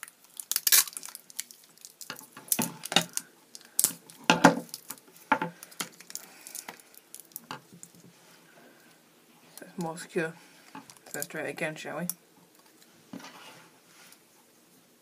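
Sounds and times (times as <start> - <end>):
sticky tape ripping off roll: 0.0 - 1.4.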